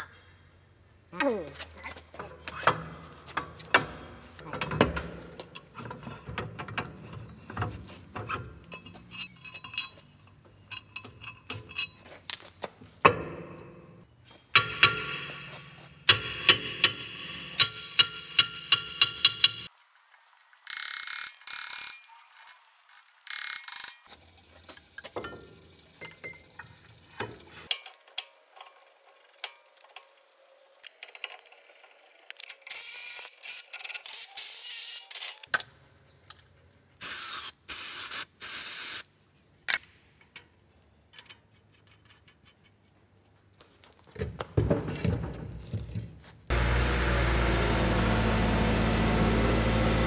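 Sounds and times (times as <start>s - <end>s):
ratchet clicking on metal: 14.6s - 19.7s, 20.6s - 24.1s.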